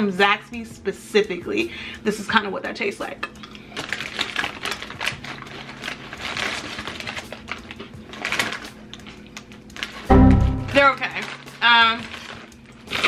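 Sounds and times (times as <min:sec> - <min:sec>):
potato chips being chewed: 0:03.3 - 0:10.1, 0:11.3 - 0:13.0.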